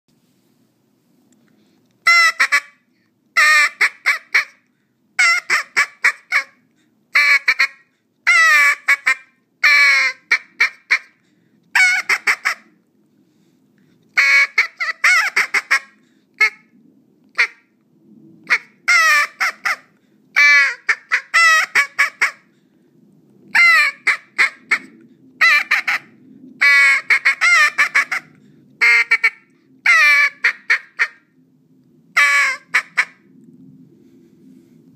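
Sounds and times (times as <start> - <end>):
duck call quacks: 2.0 - 2.8, 3.4 - 4.6, 5.2 - 6.6, 7.2 - 11.2, 11.8 - 12.7, 14.2 - 16.6, 18.5 - 19.8, 20.4 - 22.4, 23.6 - 26.0, 26.6 - 31.2, 32.2 - 33.2.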